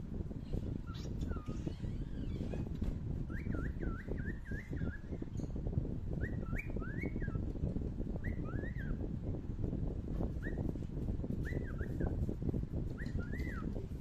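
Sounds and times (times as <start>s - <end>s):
bird chirping: 0.4s - 7.5s, 11.4s - 12.2s, 12.9s - 13.8s.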